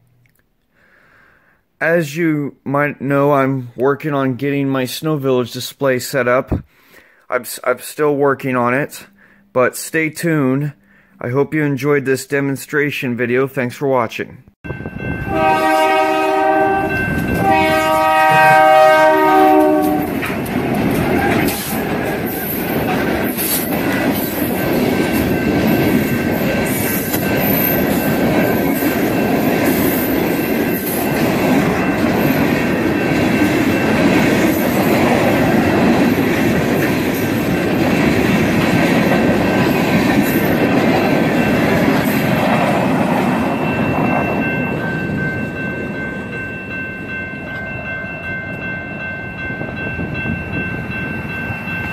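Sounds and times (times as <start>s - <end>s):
locomotive horn: 15.2s - 20.2s.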